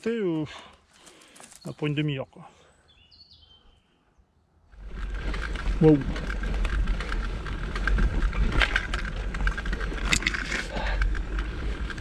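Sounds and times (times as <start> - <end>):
bike tyres on trail: 0.6 - 1.8, 4.7 - 12.0
bike clicks and rattles: 4.8 - 12.0
low rumble: 4.8 - 12.0.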